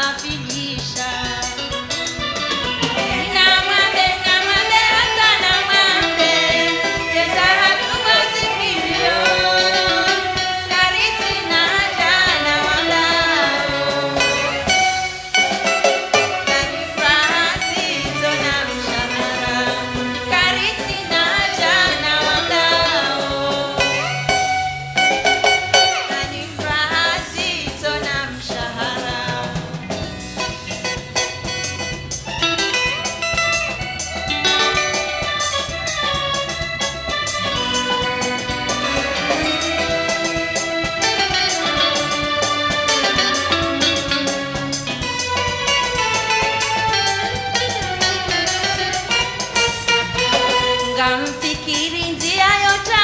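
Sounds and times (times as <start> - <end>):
drum kit: 0.0 - 53.0
fast percussion beat: 0.0 - 53.0
guitar: 0.0 - 53.0
person singing: 3.0 - 14.8, 16.0 - 24.4, 25.9 - 29.9, 50.4 - 53.0.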